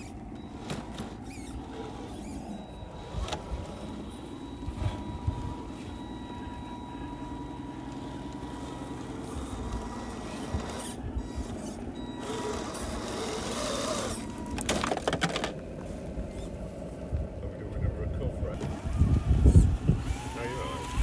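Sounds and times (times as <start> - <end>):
toy truck motors whining: 0.0 - 16.8, 18.6 - 21.0
toy truck clattering on stones: 11.6 - 15.6.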